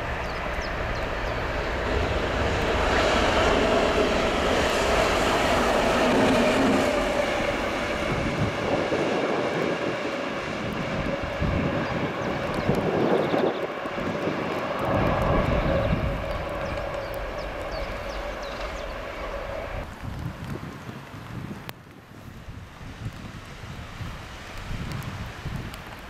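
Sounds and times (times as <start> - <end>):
diesel locomotive engine droning: 0.0 - 20.1.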